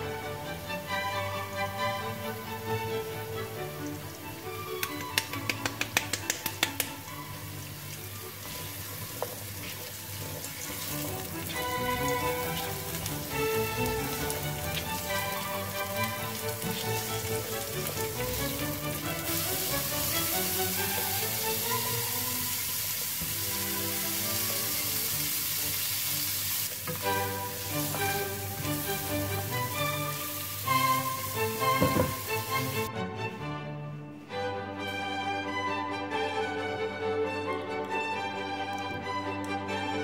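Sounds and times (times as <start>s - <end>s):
background music with melody: 0.0s - 40.0s
sharp clicks: 4.8s - 7.0s
vegetables sizzling in frying pan: 7.1s - 32.9s.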